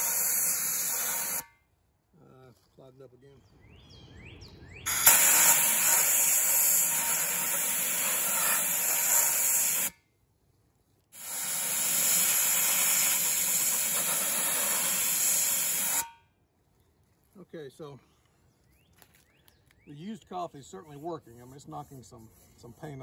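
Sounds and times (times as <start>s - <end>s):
media blaster hissing: 0.0s - 1.5s, 4.9s - 9.9s, 11.2s - 16.1s.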